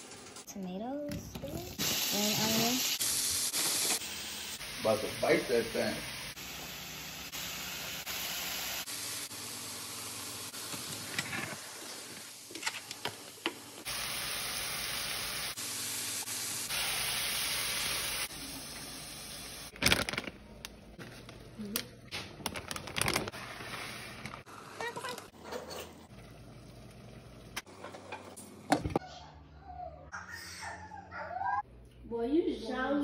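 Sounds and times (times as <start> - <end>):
vegetables sizzling in a skillet: 1.4 - 19.8.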